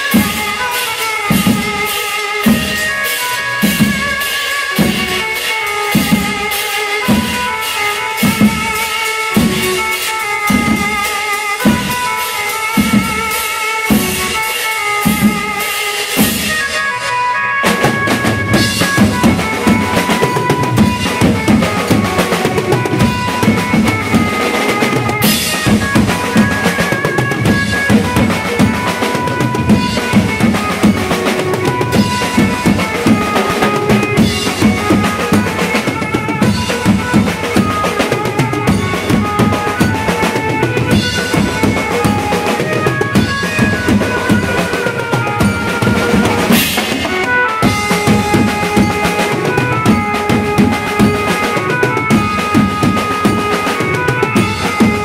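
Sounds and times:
banjo melody: 0.0s - 55.0s
drums beating: 0.0s - 55.0s.

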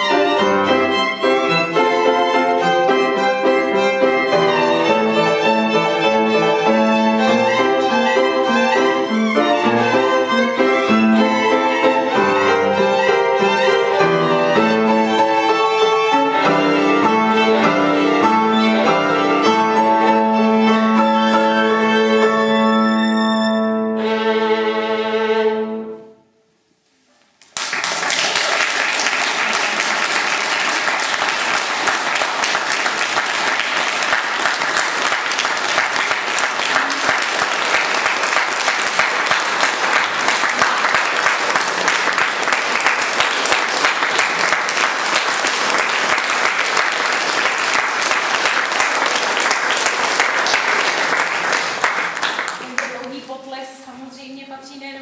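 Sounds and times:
violin and piano: 0.0s - 26.2s
audience applause: 27.4s - 53.1s.

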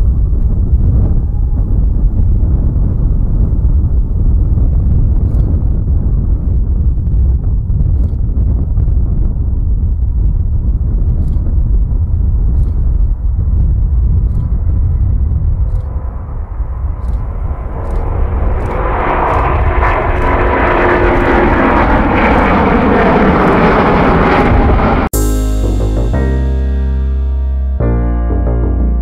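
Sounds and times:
wind on microphone: 0.0s - 25.2s
jet engines roaring: 15.8s - 25.2s.

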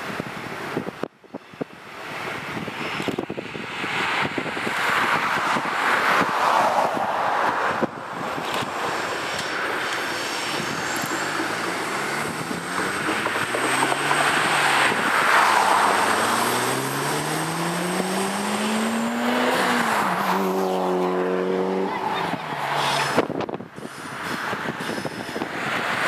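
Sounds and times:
diesel locomotive engine: 8.2s - 18.7s
train wheels rumbling on rails: 9.9s - 14.1s.

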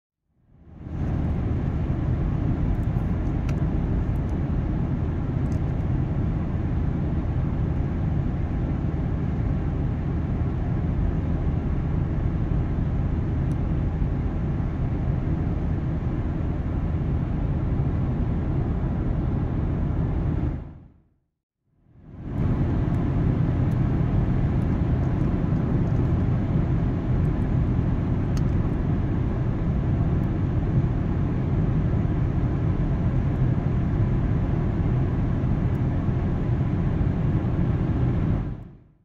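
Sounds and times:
car engine drone: 21.9s - 38.8s.

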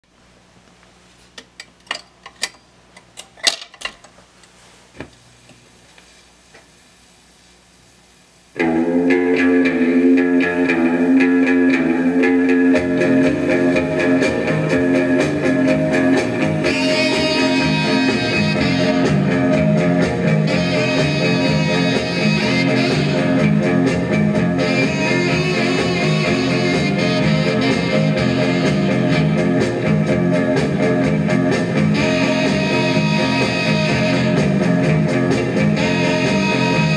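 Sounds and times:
guitar music from record player: 8.6s - 36.9s.

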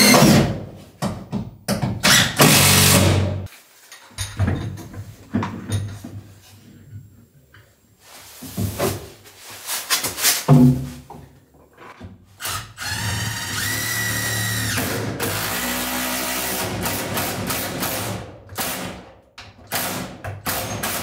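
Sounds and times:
knocks and rubbing clatter: 3.9s - 6.6s
cordless drill whining: 12.4s - 16.6s.

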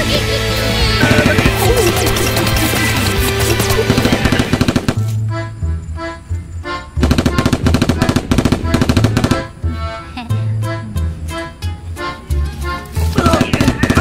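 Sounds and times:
music with pulsing bass: 0.0s - 4.8s
machine-gun sound effects: 1.0s - 5.1s, 7.0s - 9.5s, 13.2s - 14.0s.

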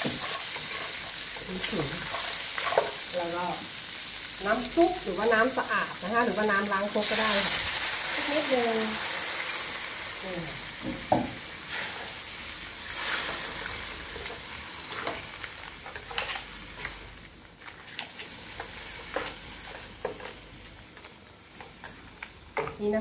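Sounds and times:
spatula scraping and tapping wok: 0.0s - 3.0s, 14.1s - 17.0s
seafood sizzling in a wok: 0.0s - 23.0s.

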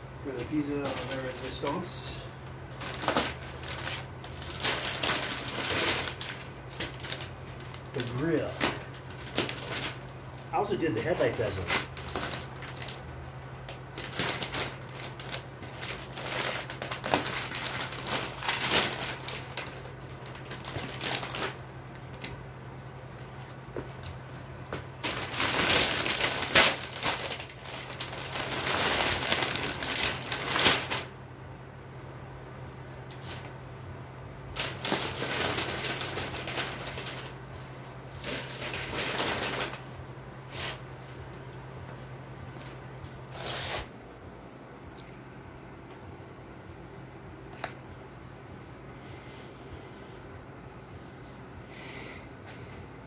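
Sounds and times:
paper and plastic wrap crinkling: 0.3s - 22.4s, 23.0s - 31.2s, 33.0s - 33.6s, 34.4s - 43.9s.

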